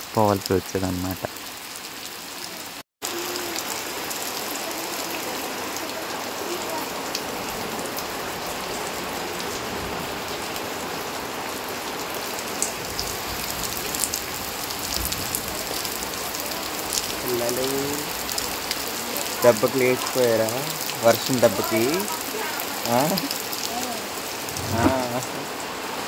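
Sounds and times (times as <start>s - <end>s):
heavy rain pouring: 0.0s - 26.0s.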